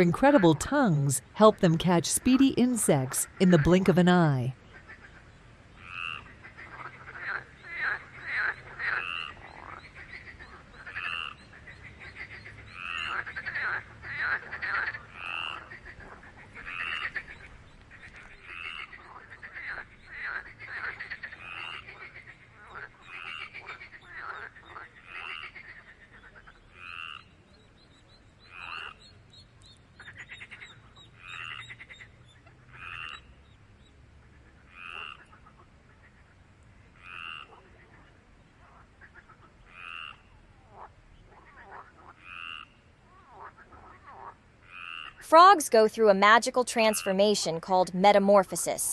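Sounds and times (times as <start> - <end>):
frog short calls: 44.1 - 45.2.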